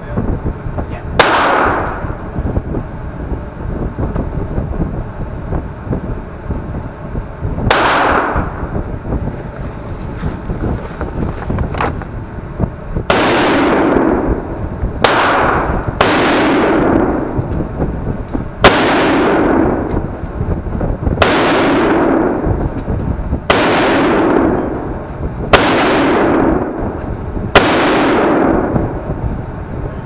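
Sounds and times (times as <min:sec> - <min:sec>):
gunshots with reverberation: 0:01.2 - 0:02.4, 0:07.7 - 0:08.8, 0:13.1 - 0:17.4, 0:18.6 - 0:20.2, 0:21.2 - 0:22.7, 0:23.5 - 0:29.2.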